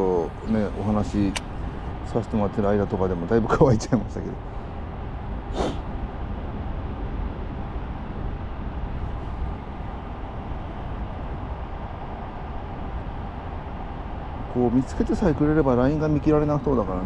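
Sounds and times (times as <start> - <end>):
brief hiss: 5.5 - 5.9.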